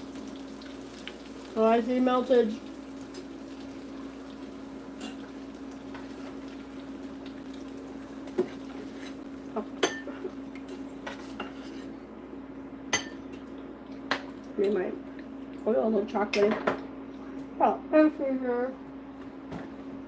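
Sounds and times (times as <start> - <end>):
spatula scraping saucepan: 9.9 - 12.0.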